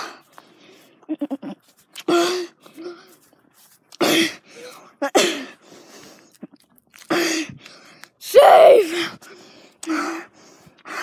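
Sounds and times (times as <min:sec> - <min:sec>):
person breathing hard: 0:00.0 - 0:01.0, 0:04.1 - 0:06.3, 0:07.1 - 0:11.0.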